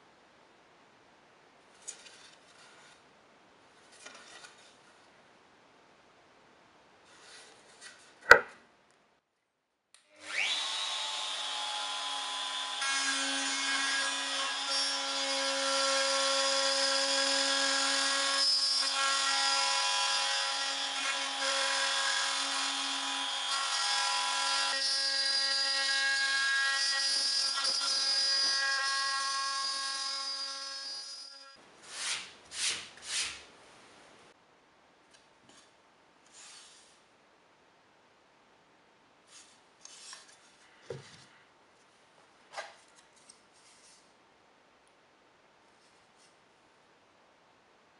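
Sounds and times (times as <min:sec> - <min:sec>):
sharp knock: 0:08.2 - 0:08.6.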